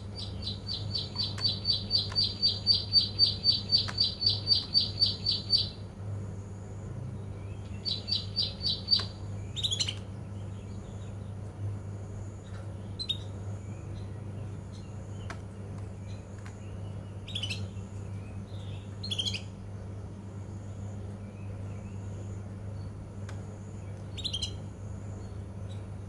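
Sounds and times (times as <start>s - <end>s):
canary chirping and warbling: 0.0s - 5.8s, 7.8s - 10.0s, 16.1s - 19.5s, 24.2s - 24.6s.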